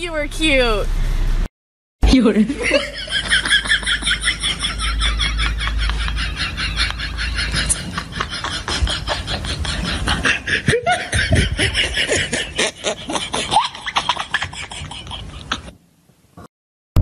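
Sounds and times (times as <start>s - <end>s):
person laughing: 2.2s - 15.8s.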